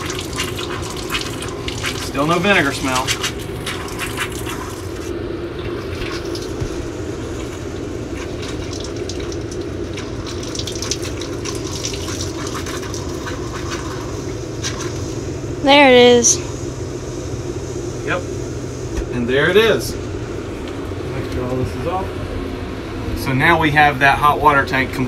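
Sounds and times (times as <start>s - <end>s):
faucet water running into sink: 0.0s - 15.1s
water pump hum: 0.0s - 25.0s.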